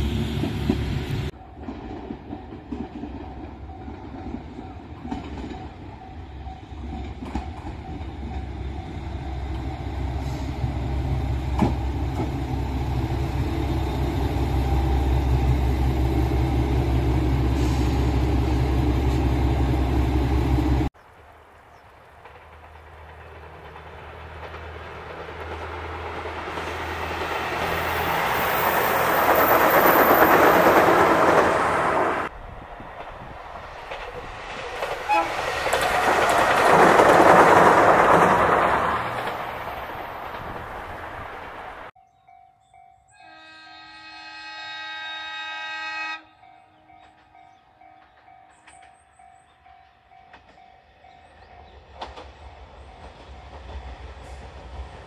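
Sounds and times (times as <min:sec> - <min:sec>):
diesel train engine rumble: 0:00.0 - 0:41.9
train wheel noise: 0:00.0 - 0:41.9, 0:47.0 - 0:55.0.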